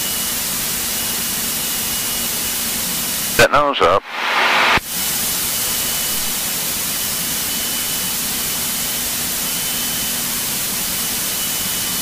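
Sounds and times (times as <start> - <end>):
faint high whine: 3.3 - 12.0.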